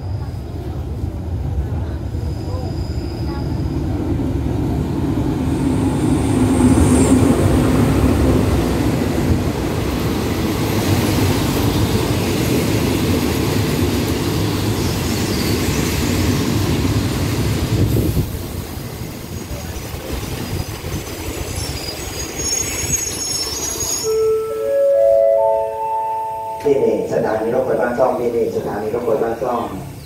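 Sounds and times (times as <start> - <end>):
train wheel rumble: 0.0 - 24.7
diesel locomotive passing: 0.0 - 30.0
faint high wheel squeals: 2.1 - 3.9, 21.4 - 25.2.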